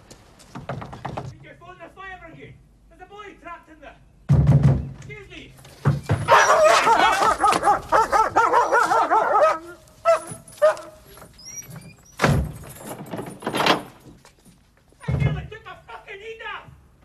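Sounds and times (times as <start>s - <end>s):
heavy knocks: 0.5s - 1.4s, 4.3s - 5.0s
dog barking and yelping: 6.2s - 11.8s.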